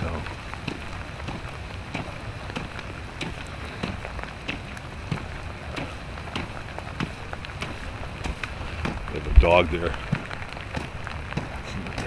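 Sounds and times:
footsteps on wet gravel: 0:00.0 - 0:12.0
rain hissing: 0:00.0 - 0:12.0.

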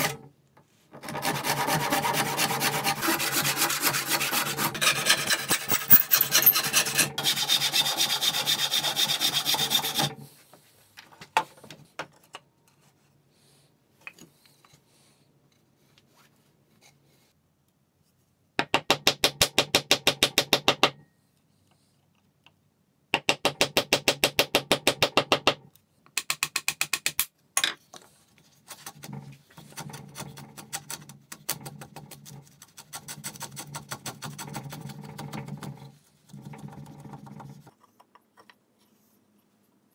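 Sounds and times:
handsaw cutting wood: 0:01.0 - 0:10.2
router plane scraping wood: 0:01.0 - 0:10.2.

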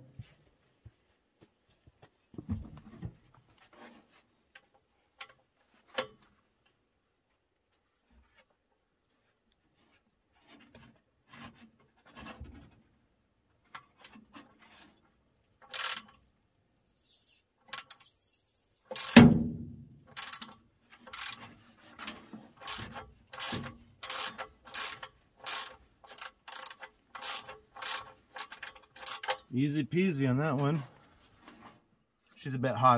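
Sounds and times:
ratchet clicks: 0:15.6 - 0:16.2, 0:16.9 - 0:19.5, 0:20.1 - 0:21.4, 0:22.6 - 0:29.4
loud metal clank: 0:19.1 - 0:19.8.

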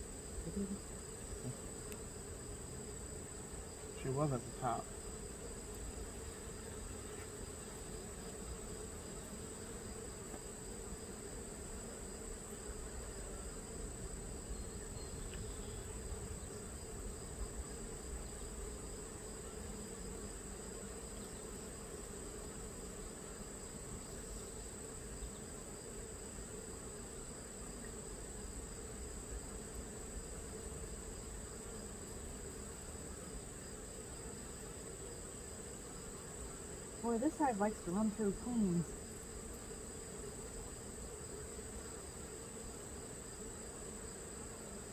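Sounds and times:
honey bees humming: 0:00.0 - 0:44.9.

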